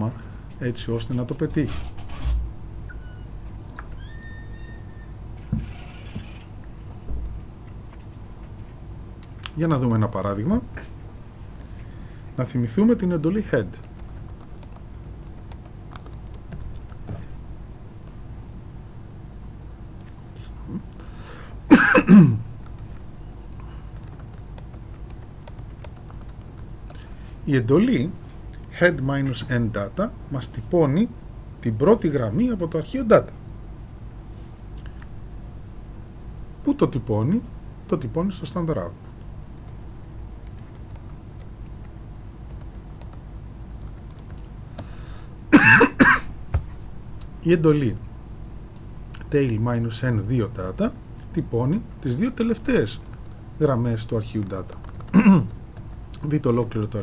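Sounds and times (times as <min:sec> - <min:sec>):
low steady hum: 0:00.0 - 0:57.0
man clearing throat: 0:21.7 - 0:22.5, 0:45.5 - 0:46.3, 0:55.1 - 0:55.5.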